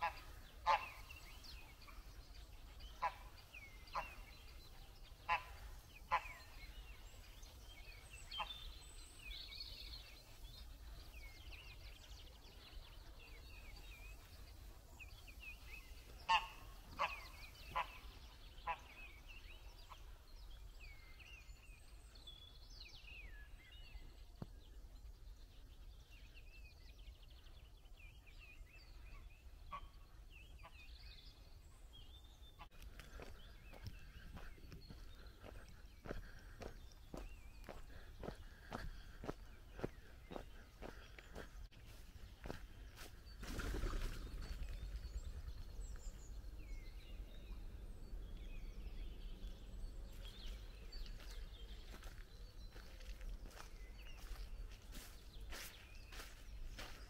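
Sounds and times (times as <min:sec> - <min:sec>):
waterfowl honking: 0:00.0 - 0:01.1, 0:03.0 - 0:04.3, 0:05.2 - 0:06.6, 0:16.2 - 0:18.9
small birds chirping: 0:00.0 - 0:57.0.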